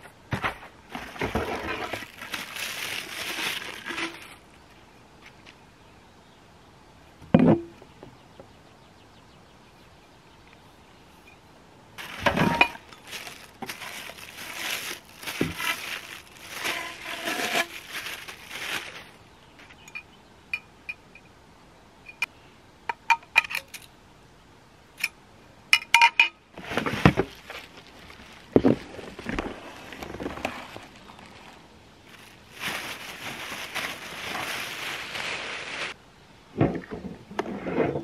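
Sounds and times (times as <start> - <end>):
cardboard and plastic rustling: 0.0 - 4.5, 12.0 - 19.2, 26.6 - 36.0.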